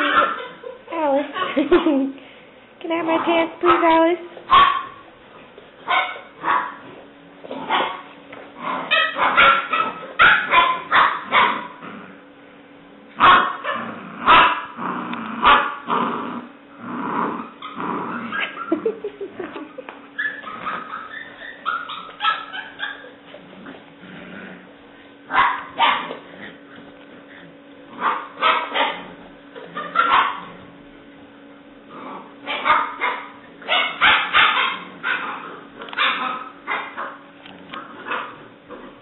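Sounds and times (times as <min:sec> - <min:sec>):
puppy barking and yipping: 0:00.0 - 0:00.6, 0:04.5 - 0:05.0, 0:05.8 - 0:06.8, 0:07.7 - 0:08.1, 0:08.8 - 0:11.8, 0:20.2 - 0:23.2, 0:25.3 - 0:26.2, 0:28.0 - 0:29.0, 0:29.6 - 0:30.5, 0:32.5 - 0:37.2, 0:38.0 - 0:38.4.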